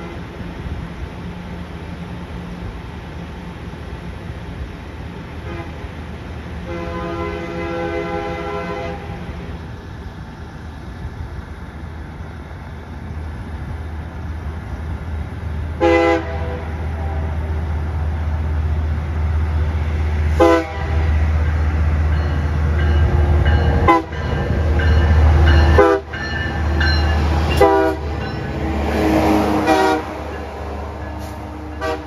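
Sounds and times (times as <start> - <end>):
train rumble: 0.0 - 32.0
train air horn: 5.4 - 5.9, 6.6 - 9.4, 15.8 - 17.6, 20.3 - 21.2, 23.9 - 24.2, 25.8 - 26.1, 27.6 - 28.1, 29.0 - 30.3, 31.2 - 32.0.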